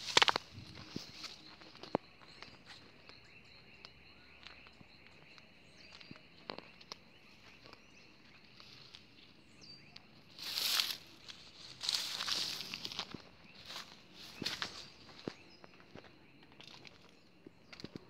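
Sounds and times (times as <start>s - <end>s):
footsteps through weeds: 0.0s - 1.9s, 10.3s - 15.4s.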